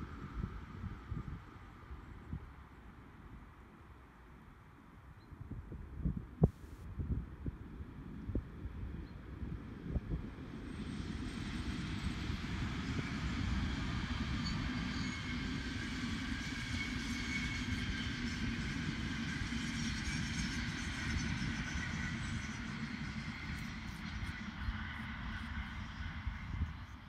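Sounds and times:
faint train whine: 0.0s - 27.0s
train wheels rumbling on rail: 9.5s - 27.0s.

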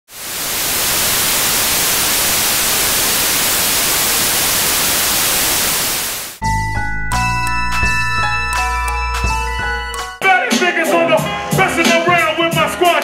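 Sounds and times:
tv static hiss: 0.1s - 6.4s
music with deep bass: 6.4s - 10.2s.

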